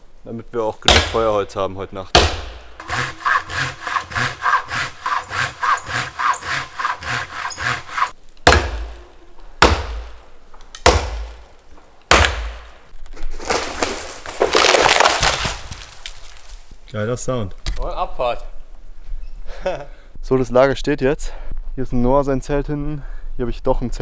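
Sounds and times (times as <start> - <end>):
heavy knocks: 2.1 - 10.2, 10.8 - 11.5
hand saw cutting tree trunk: 2.2 - 9.0
tree cracking and falling: 8.5 - 16.9.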